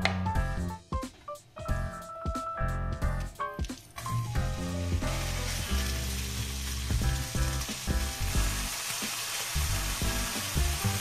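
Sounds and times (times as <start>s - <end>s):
lo-fi background music: 0.0s - 11.0s
chicken sizzling in hot oil: 3.6s - 11.0s.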